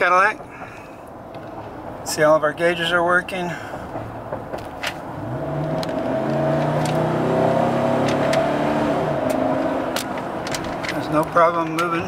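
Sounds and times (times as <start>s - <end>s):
car engine accelerating: 3.9s - 11.8s.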